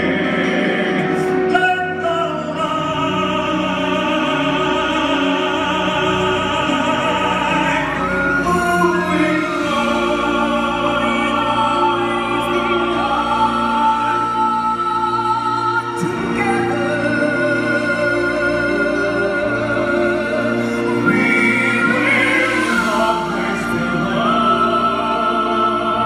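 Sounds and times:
man and woman singing operatically: 0.0 - 26.0
orchestra with strings: 0.0 - 26.0.

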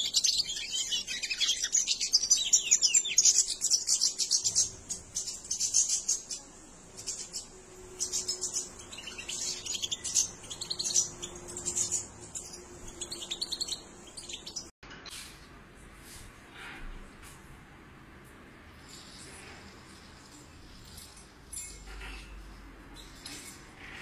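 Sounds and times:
goldfinches chirping and twittering: 0.0 - 14.7.

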